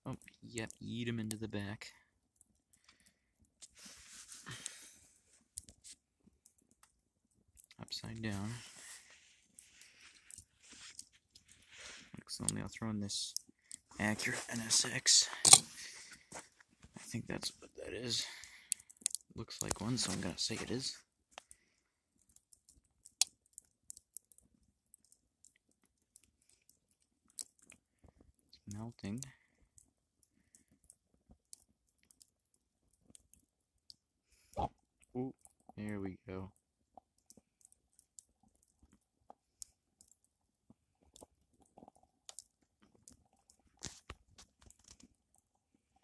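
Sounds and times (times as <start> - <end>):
wood fire crackling and popping: 0.0 - 46.0.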